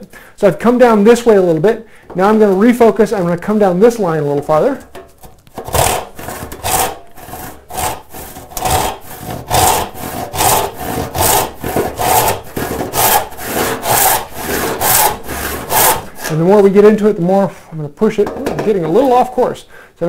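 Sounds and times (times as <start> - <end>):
hand saw cutting wood: 5.6 - 16.5.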